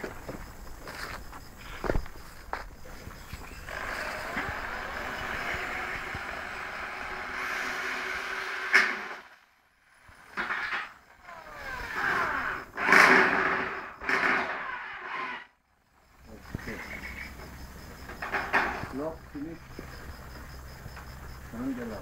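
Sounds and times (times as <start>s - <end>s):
metal sheet scraping over wood: 11.9s - 15.5s.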